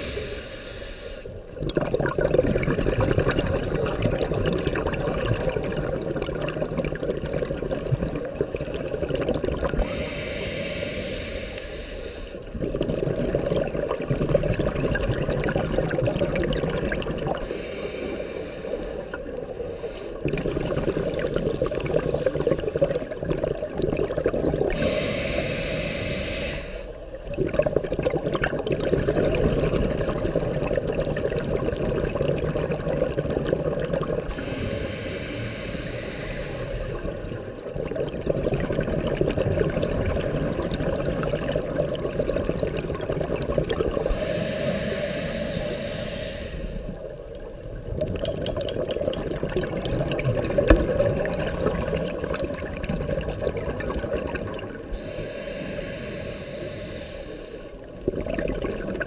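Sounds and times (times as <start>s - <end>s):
hissing regulator inhale: 0.0s - 1.4s, 9.8s - 12.6s, 17.4s - 22.5s, 24.2s - 28.8s, 34.2s - 37.7s, 43.8s - 47.5s, 54.8s - 58.0s
exhaled bubbles rushing: 1.5s - 9.9s, 12.5s - 17.4s, 20.2s - 25.0s, 27.0s - 34.4s, 37.6s - 44.2s, 46.9s - 55.0s, 57.8s - 59.0s.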